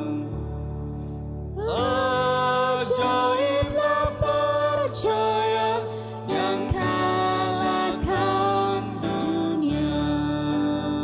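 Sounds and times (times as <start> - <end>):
woman and man singing a hymn: 0.0 - 0.4, 1.6 - 11.0
instrumental backing music: 0.0 - 11.0.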